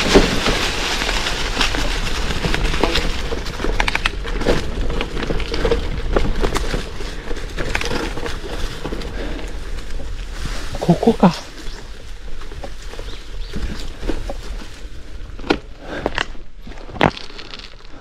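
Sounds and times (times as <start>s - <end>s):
stones and twigs snapping: 0.0s - 8.9s, 15.4s - 18.0s
bike rattling: 0.0s - 18.0s
bike tyres crunching on gravel: 0.0s - 18.0s.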